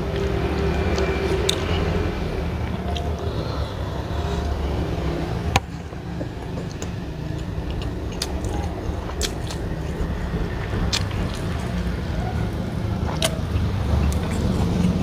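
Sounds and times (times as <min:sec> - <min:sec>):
person chewing: 0:00.0 - 0:15.0
steady low hum: 0:00.0 - 0:15.0.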